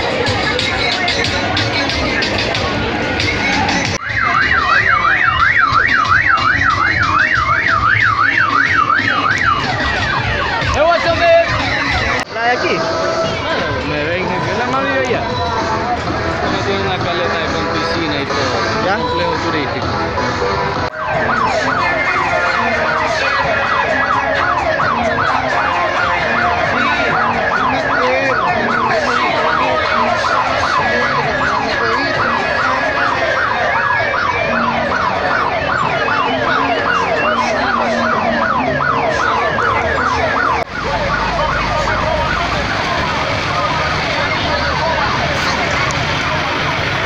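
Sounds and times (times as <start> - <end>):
electronic siren whoops: 4.0 - 12.2, 20.9 - 46.2.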